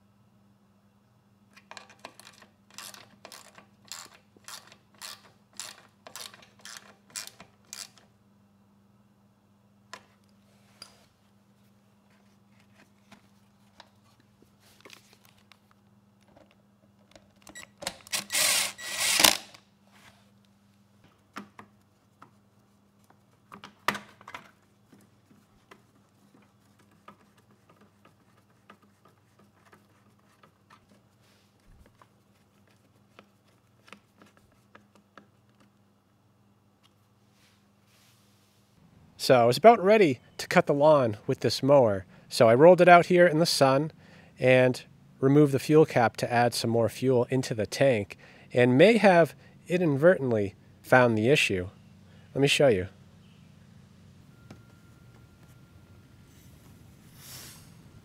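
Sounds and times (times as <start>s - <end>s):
socket ratchet clicking: 1.6s - 8.0s.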